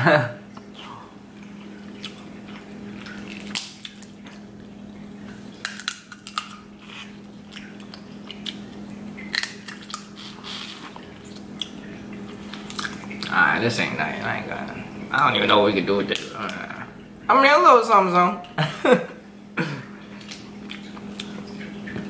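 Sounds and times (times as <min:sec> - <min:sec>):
wet sucking and chewing: 0:00.6 - 0:13.4, 0:20.0 - 0:22.0
crab shell cracking: 0:03.0 - 0:04.5, 0:05.6 - 0:10.7.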